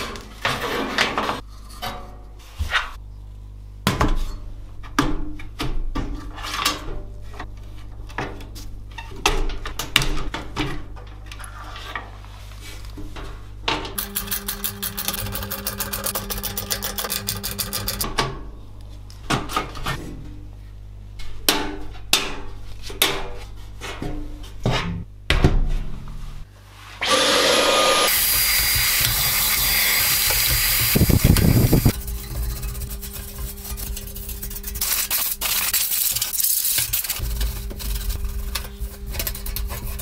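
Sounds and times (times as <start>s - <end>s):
spray can hissing: 28.1s - 31.9s, 34.8s - 37.2s.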